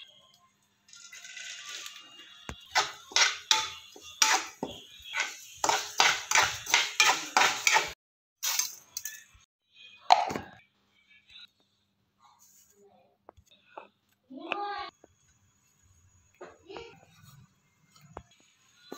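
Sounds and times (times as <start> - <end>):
metal spoon scraping steel pan: 2.7 - 8.0.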